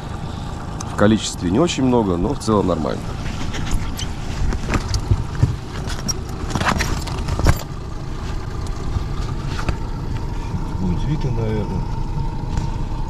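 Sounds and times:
wind rumble on microphone: 3.0 - 7.6
handling knocks and rustles: 3.1 - 10.3.

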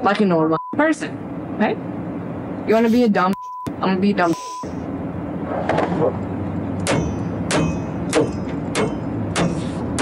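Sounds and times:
engine and road rumble: 0.0 - 10.0.

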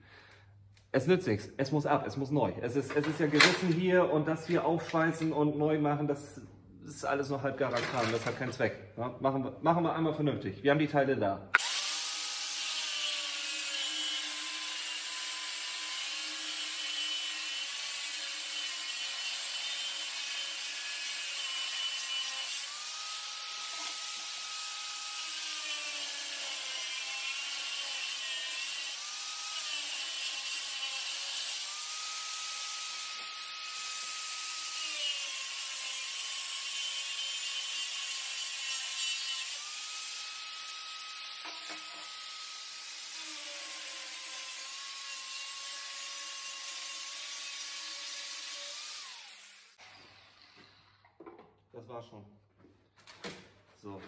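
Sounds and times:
angle grinder cutting steel pipe: 11.6 - 51.1.

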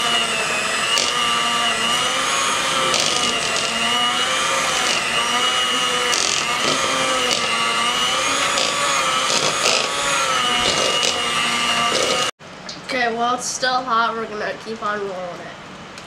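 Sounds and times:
electric hand mixer whipping: 0.0 - 12.4.

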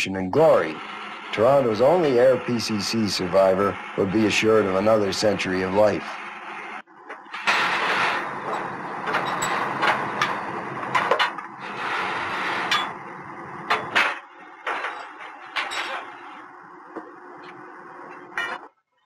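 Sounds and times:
engine running steadily: 0.4 - 18.4
metal clanks and knocks: 8.4 - 11.5, 13.6 - 16.2.

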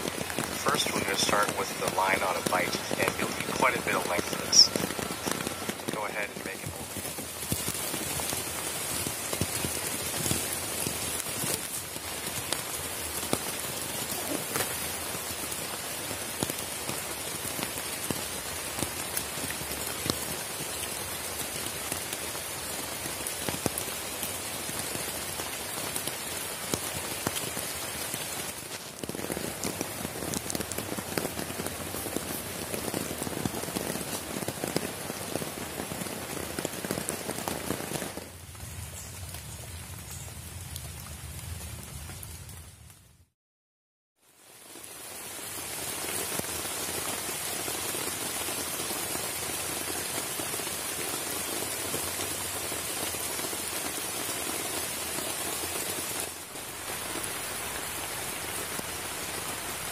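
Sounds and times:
rain falling on a tarp: 0.0 - 43.4, 44.2 - 59.9.

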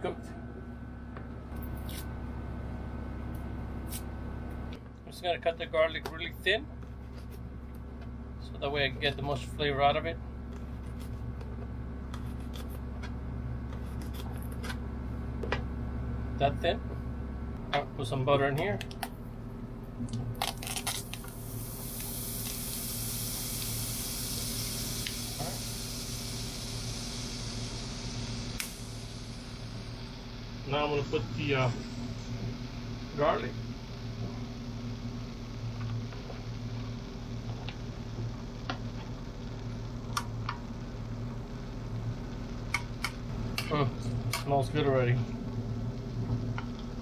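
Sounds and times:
low hum: 0.0 - 47.0
butter sizzling on skillet: 20.8 - 30.7.

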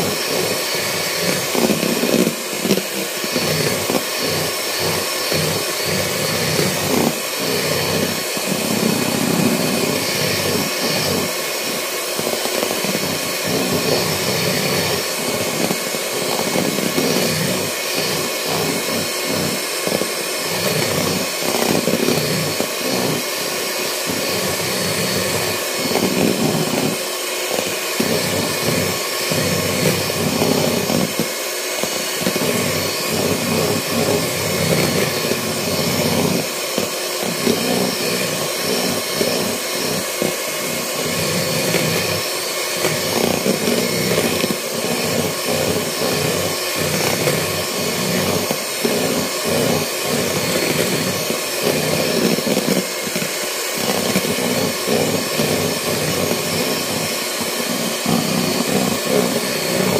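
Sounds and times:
electric mixer whipping in bowl: 0.0 - 59.9.

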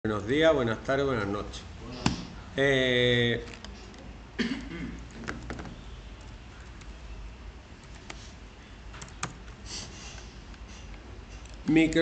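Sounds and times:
keyboard keys clicking: 8.9 - 9.6.

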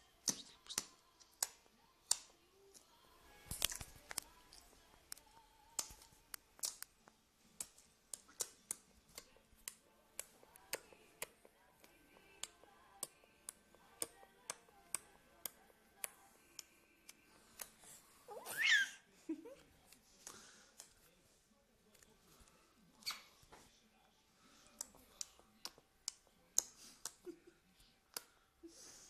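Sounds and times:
baby squealing: 18.3 - 19.0.

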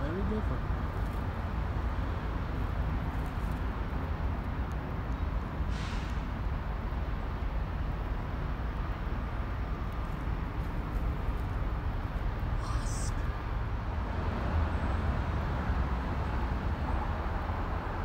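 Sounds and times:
brief hiss: 5.7 - 6.3.

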